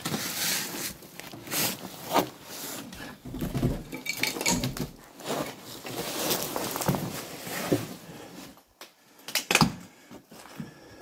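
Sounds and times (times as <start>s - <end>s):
scrapes and knocks of debris: 3.0s - 8.0s.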